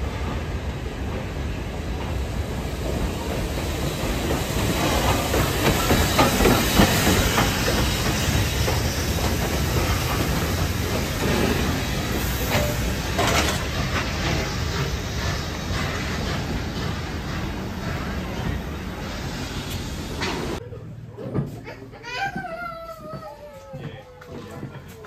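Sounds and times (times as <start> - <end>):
steam hissing: 0.0 - 20.6
train wheels clanking on rail joints: 1.9 - 20.6.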